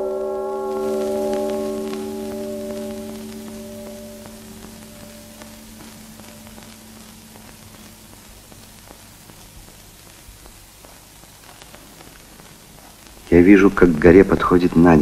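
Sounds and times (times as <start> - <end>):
faint low held note: 0.0 - 8.7
film soundtrack hiss and crackle: 0.0 - 15.0.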